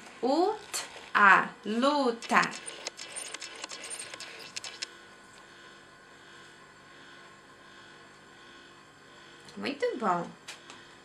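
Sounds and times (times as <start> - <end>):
faint steady hum: 0.0 - 11.0
magnetic cards clicking and tapping: 2.2 - 4.9.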